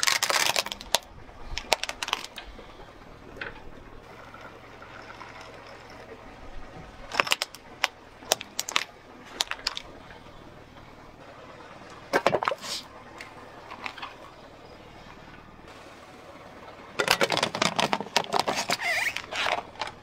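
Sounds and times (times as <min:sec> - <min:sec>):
plastic toys cracking under tyre: 0:00.0 - 0:02.5, 0:07.1 - 0:09.9, 0:17.0 - 0:20.0.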